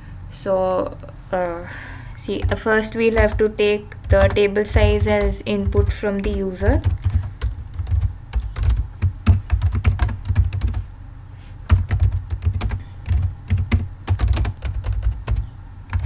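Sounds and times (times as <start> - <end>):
typing on a keyboard: 2.4 - 10.8, 11.7 - 16.0.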